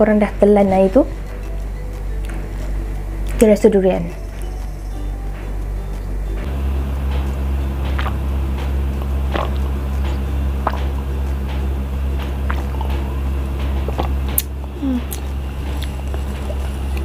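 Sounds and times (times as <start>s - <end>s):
steady low hum: 0.0s - 17.0s
swallowing and gulping: 7.8s - 17.0s.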